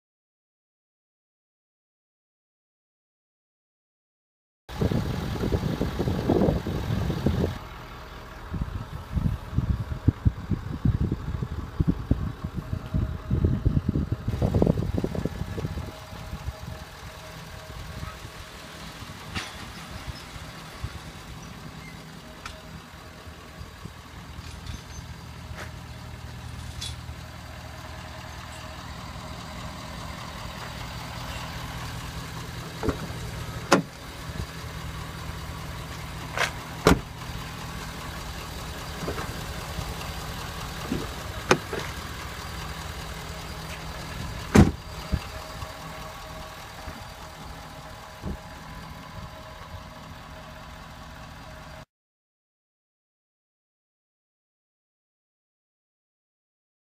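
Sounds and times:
pickup engine idling: 4.7 - 51.8
car door clunks: 32.7 - 33.9, 36.4 - 37.1, 40.8 - 42.0, 44.5 - 44.8.

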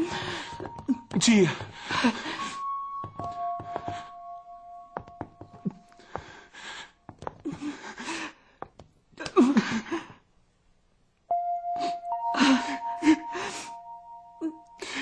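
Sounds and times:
person gasping and breathing heavily: 0.0 - 4.2, 5.5 - 10.2
held music tone: 11.3 - 15.0.

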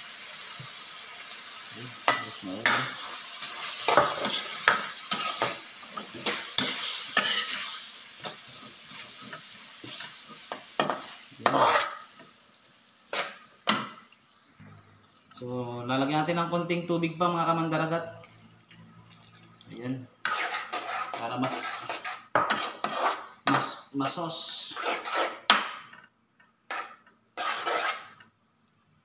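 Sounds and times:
pan sizzling: 0.0 - 26.0
metal ladle scraping a wok: 3.4 - 7.9, 10.8 - 12.1, 20.2 - 23.3, 24.7 - 25.5, 26.7 - 28.3.

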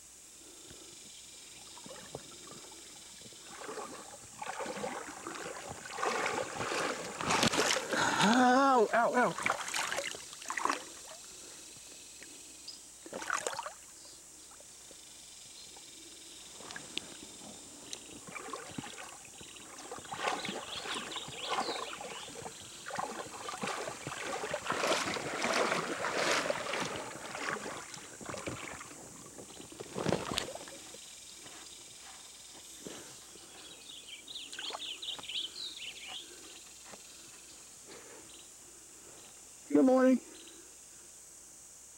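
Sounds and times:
water splashing around legs: 3.2 - 8.5, 9.2 - 11.2, 13.1 - 13.8, 16.6 - 31.0.

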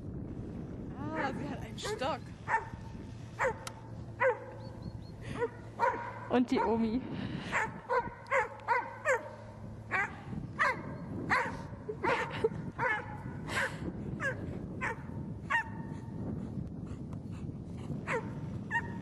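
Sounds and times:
dog barking and yelping: 3.4 - 4.6, 5.4 - 6.8, 7.5 - 13.2, 14.2 - 15.8.

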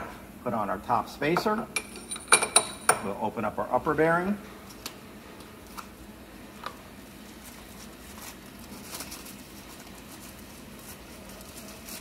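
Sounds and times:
low shop hum: 0.0 - 12.0
cardboard and wrapping rustling: 7.3 - 12.0.

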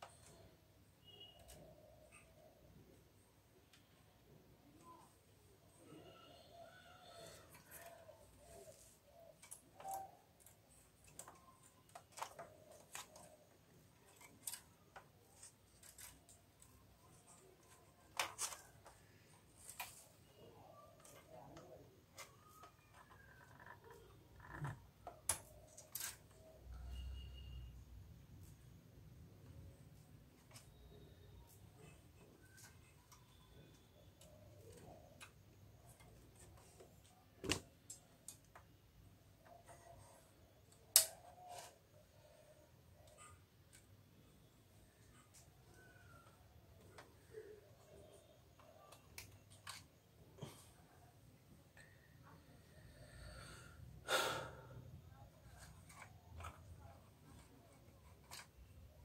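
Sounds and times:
plastic printer parts clicking: 7.5 - 20.4, 48.0 - 50.0.

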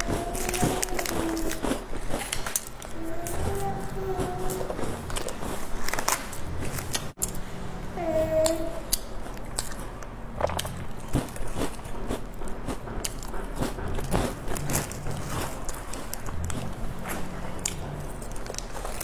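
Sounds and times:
plastic wrapper crinkling: 0.0 - 2.7
crunchy biscuit chewing: 0.0 - 3.8, 8.9 - 19.0.

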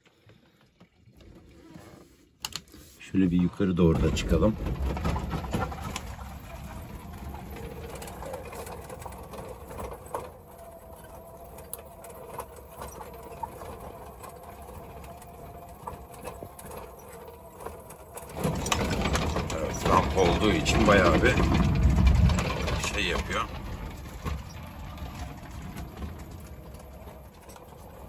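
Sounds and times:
body knocks and rattles: 3.8 - 28.0
tyre rumble on dirt track: 3.9 - 11.3, 12.0 - 28.0.

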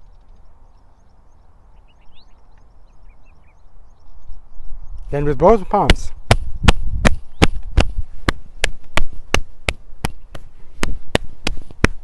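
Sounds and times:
palms slapping the body: 5.9 - 12.0.

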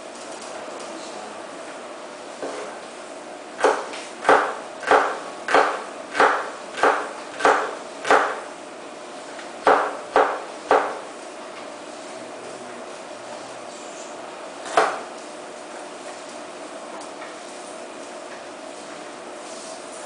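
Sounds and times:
knife chopping on wooden board: 3.6 - 8.5, 9.6 - 11.1, 14.6 - 15.1.

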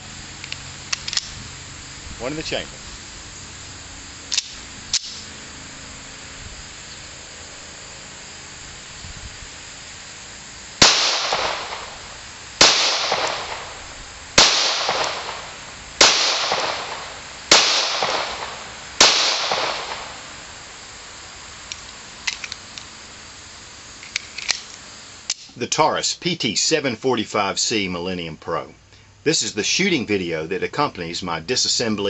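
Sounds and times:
pistol shots with echo: 10.8 - 12.0, 12.6 - 13.8, 14.4 - 20.3.

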